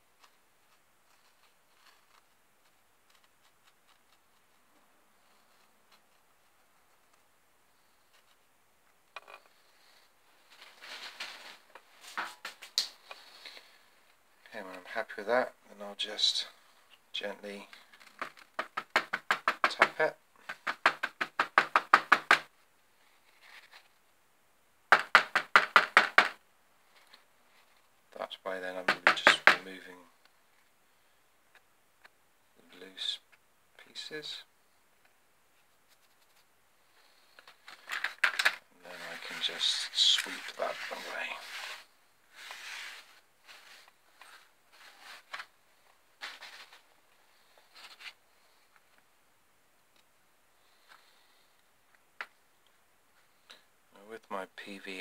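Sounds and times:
faint rustle: 35.5 - 38.1
hand brushing sawdust off table: 38.9 - 43.9.

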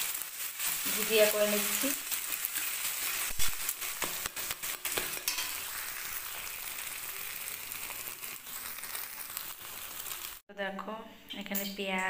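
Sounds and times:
eggs sizzling in hot oil: 0.0 - 10.5
spatula scraping pan: 0.6 - 6.6.

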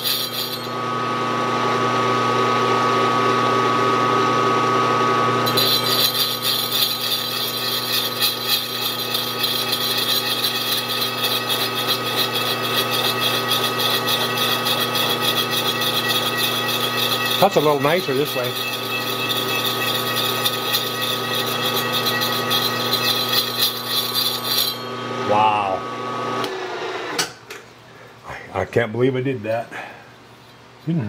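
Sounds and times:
milling machine motor hum: 0.7 - 27.1
gritty cutting chatter: 5.5 - 24.8.

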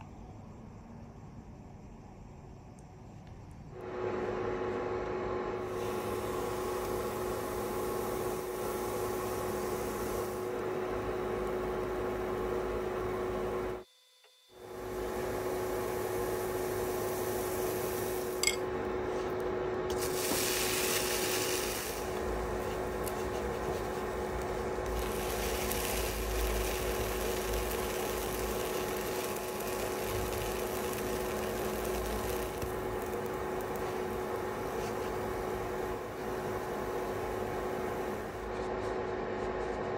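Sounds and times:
steady motor hum: 3.7 - 39.9.

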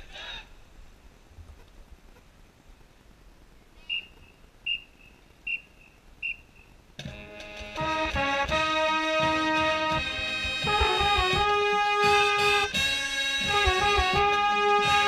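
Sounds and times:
marching band brass chords: 7.0 - 15.0.

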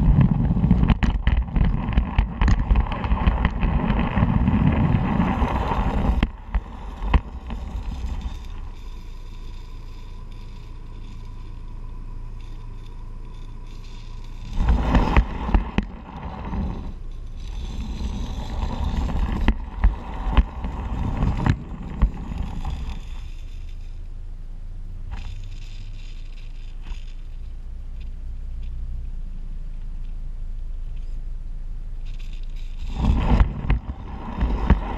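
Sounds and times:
sharp clicks and knocks: 0.0 - 23.9
wheels rumbling on rail: 0.0 - 34.9.

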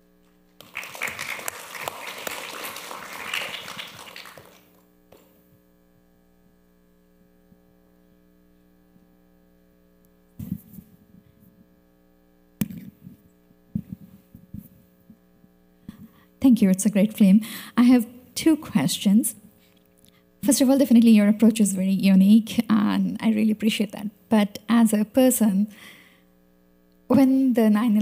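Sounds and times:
electrical hum: 0.0 - 28.0
audience applause: 0.6 - 4.8.

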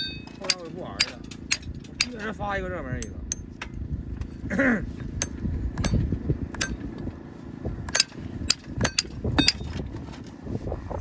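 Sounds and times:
hammer striking horseshoe nail: 0.0 - 2.2, 5.2 - 6.8, 7.9 - 9.7.

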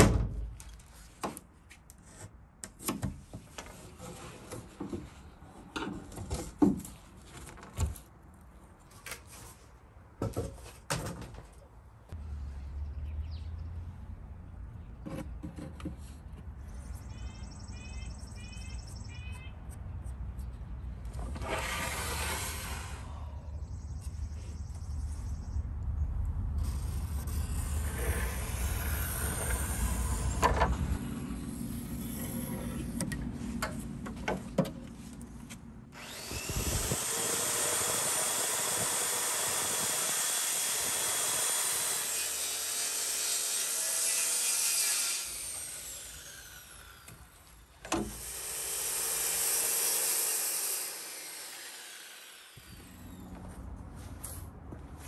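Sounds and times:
circular saw cutting wood: 21.3 - 23.2, 26.6 - 33.1, 35.9 - 53.3.

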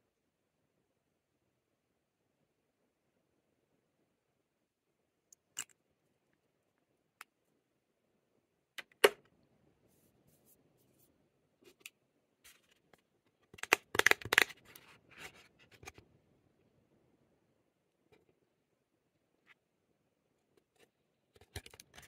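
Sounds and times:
packaging clicks and taps: 13.5 - 14.8, 21.4 - 22.0.

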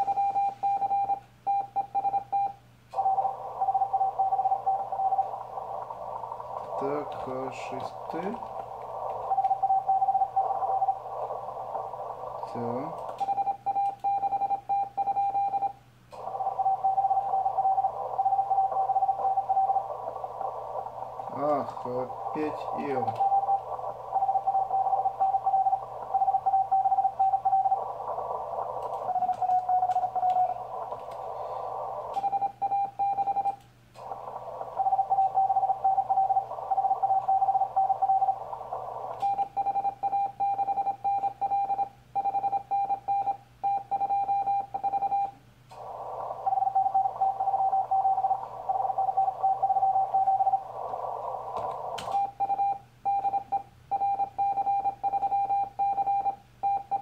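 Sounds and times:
receiver hiss: 0.0 - 57.0
morse code tone: 13.2 - 33.6, 39.2 - 45.4
computer keyboard clicks: 28.8 - 31.2.

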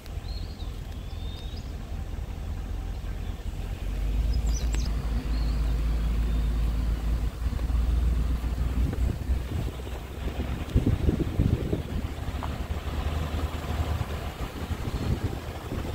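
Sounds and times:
car road and wind rumble: 0.0 - 15.9
wind buffeting microphone: 4.1 - 15.9.

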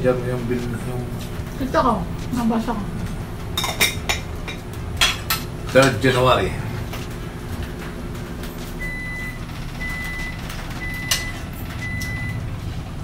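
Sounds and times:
low engine rumble: 0.0 - 13.0
reversing alarm beeping: 8.8 - 12.6.

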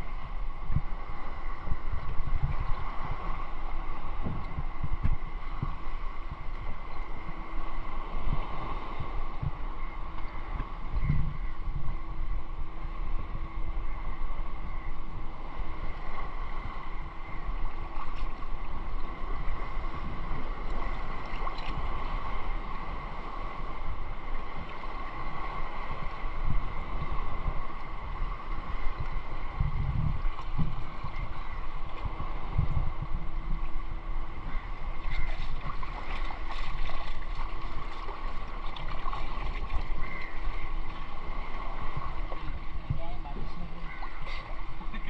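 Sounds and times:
steady hum: 0.0 - 45.0
wind buffeting microphone: 0.0 - 45.0
sea water sloshing: 15.4 - 45.0.

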